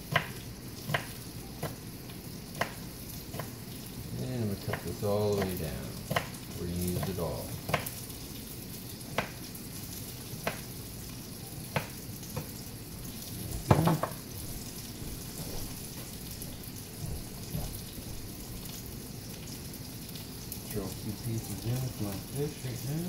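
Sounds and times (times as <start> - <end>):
fish frying in oil: 0.0 - 23.0
knife chopping on cutting board: 4.7 - 6.4, 13.6 - 14.2.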